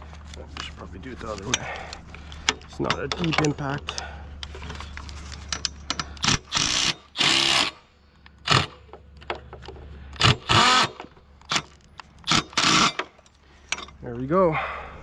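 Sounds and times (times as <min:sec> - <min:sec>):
impact driver bursts: 0:06.0 - 0:07.8, 0:08.4 - 0:08.9, 0:10.2 - 0:13.2.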